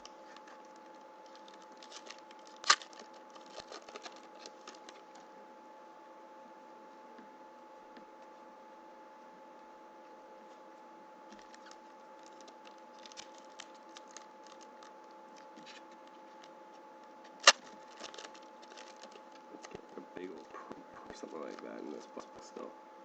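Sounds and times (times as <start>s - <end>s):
foil wrapper crinkling: 0.2s - 5.2s, 11.4s - 16.5s, 17.3s - 20.5s.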